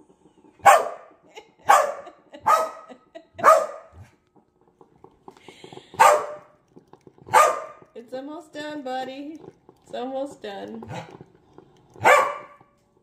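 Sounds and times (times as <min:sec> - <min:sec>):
dog barking: 0:00.6 - 0:04.1, 0:06.0 - 0:06.5, 0:07.3 - 0:07.8, 0:12.0 - 0:12.6.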